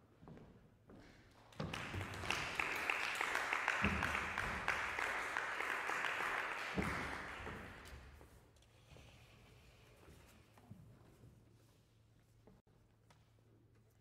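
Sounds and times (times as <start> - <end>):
audience applauding: 1.6 - 8.0.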